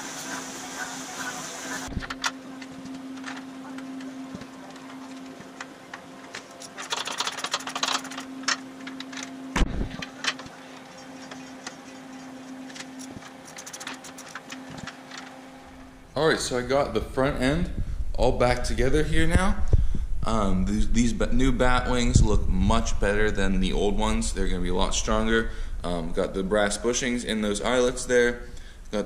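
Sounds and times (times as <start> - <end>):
steady hum: 0.0 - 29.0
ratchet clicking rapidly: 6.6 - 8.3, 13.0 - 14.5
wrenches clinking on nuts: 6.6 - 8.6.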